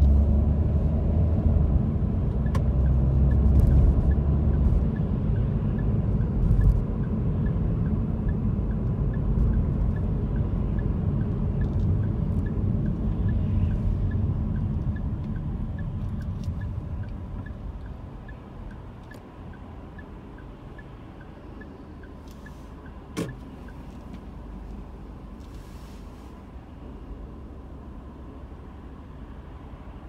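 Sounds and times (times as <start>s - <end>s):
car road noise: 0.0s - 30.0s
light regular ticking: 2.4s - 24.4s.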